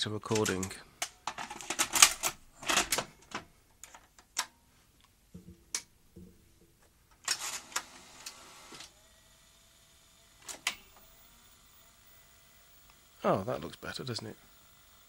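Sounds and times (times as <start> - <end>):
plastic cassette clicks and clatter: 0.3 - 4.5, 10.4 - 11.2.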